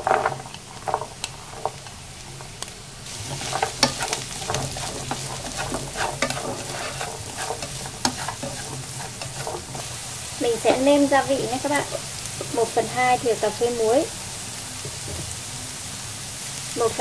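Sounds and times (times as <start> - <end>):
wooden spatula scraping pan: 0.0 - 2.5, 3.1 - 12.6
food sizzling in a frying pan: 0.0 - 17.0.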